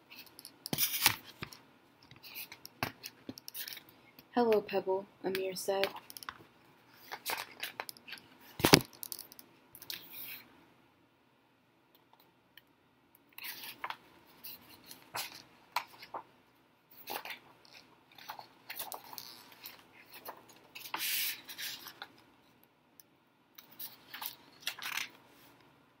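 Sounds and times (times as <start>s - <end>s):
paper rustling: 6.9s - 8.9s, 13.4s - 16.2s, 17.0s - 22.2s, 23.7s - 25.6s.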